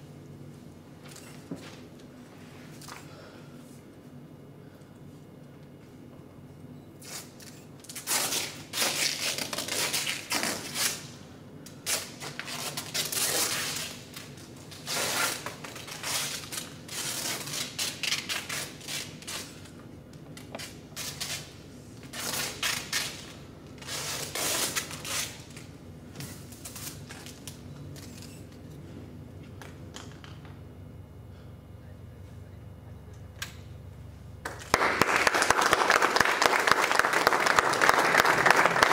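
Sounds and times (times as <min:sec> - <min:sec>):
adhesive tape ripping off roll: 0:07.0 - 0:11.1, 0:11.8 - 0:19.5, 0:22.1 - 0:25.6.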